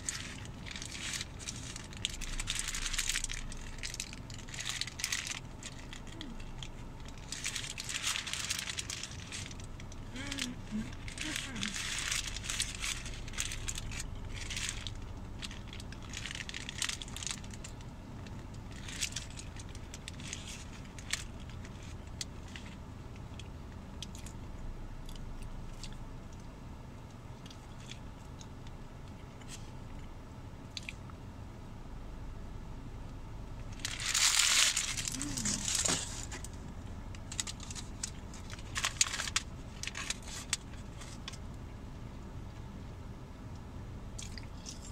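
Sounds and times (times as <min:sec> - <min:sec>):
paper wrapper crinkling: 0:00.0 - 0:22.8, 0:33.7 - 0:41.4
steady low hum: 0:00.0 - 0:44.9.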